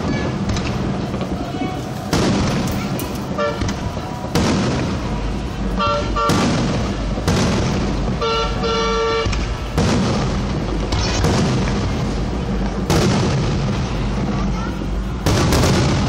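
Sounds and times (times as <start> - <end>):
fireworks booming and crackling: 0.0 - 16.0
car horns honking: 2.8 - 3.8, 5.7 - 6.5, 8.1 - 9.4.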